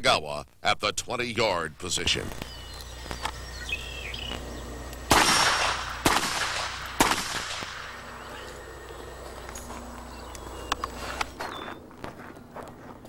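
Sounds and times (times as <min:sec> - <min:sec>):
pistol shots with echo: 0:05.1 - 0:08.2.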